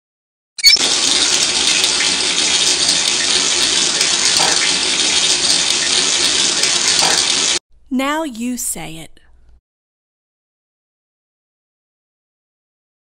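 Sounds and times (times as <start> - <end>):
faucet water running into sink: 0.6 - 7.6.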